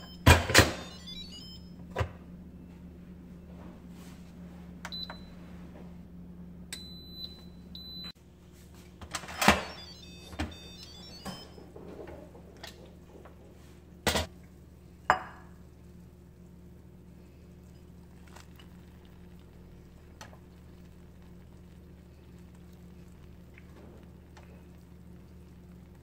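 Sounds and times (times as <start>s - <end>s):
short electronic beeps: 0.0s - 1.7s, 9.6s - 11.6s
steady low hum: 0.0s - 26.0s
ceramic bowl set on countertop: 11.8s - 15.8s.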